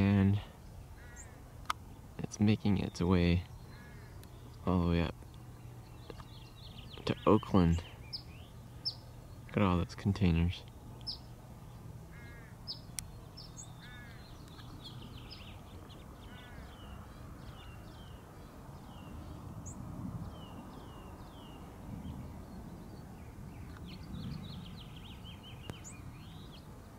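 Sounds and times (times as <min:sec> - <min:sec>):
small birds chirping: 0:00.0 - 0:26.9
harsh caws: 0:01.0 - 0:01.4, 0:03.7 - 0:04.2, 0:12.1 - 0:12.6, 0:13.8 - 0:14.3, 0:16.2 - 0:17.0
wind rumble on microphone: 0:12.8 - 0:26.9.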